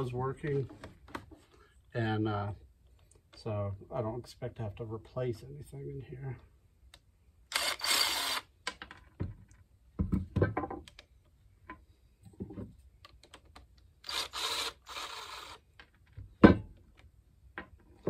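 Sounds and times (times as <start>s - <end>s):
cordless drill spinning out bolts: 7.5s - 8.5s, 14.0s - 15.6s.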